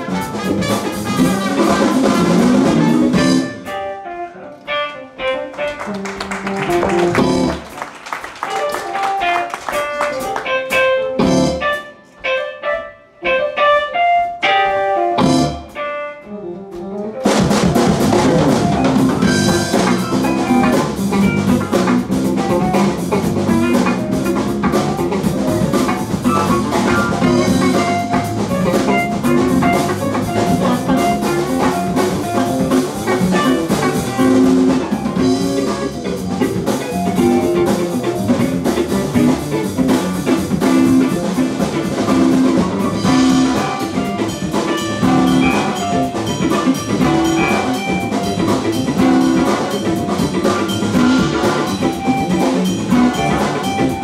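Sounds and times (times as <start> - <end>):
funk jazz band playing: 0.0 - 54.0.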